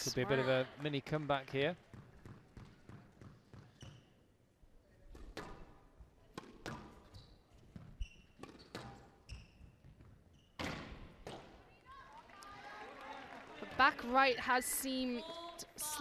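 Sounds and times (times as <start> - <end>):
shoes squeaking on court: 2.0 - 4.2, 6.4 - 10.8.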